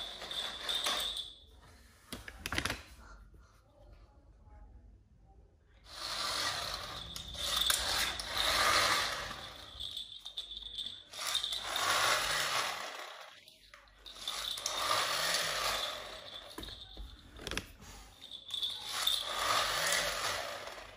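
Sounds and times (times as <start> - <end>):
toy gear mechanism whirring: 5.9 - 17.0, 18.4 - 20.9.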